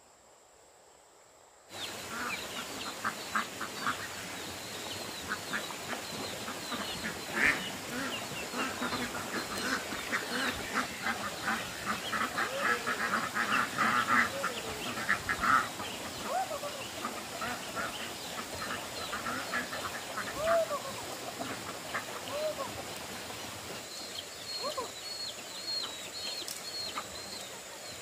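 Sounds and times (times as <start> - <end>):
ducks quacking: 1.8 - 23.9.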